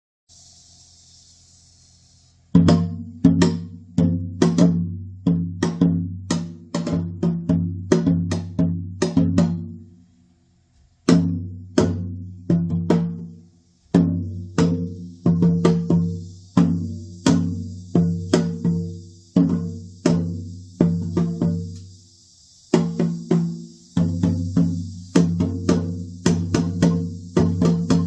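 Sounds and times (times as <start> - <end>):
hourglass drum beats: 2.5 - 9.9, 11.0 - 28.0.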